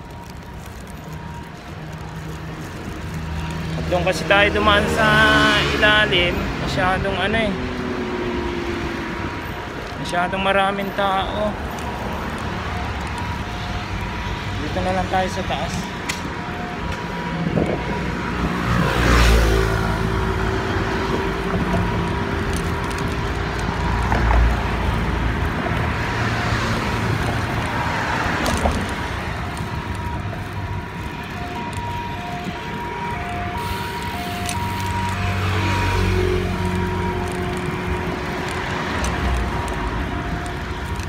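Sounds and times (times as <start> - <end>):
road traffic rumble: 0.0 - 41.0
vehicles passing: 0.0 - 41.0.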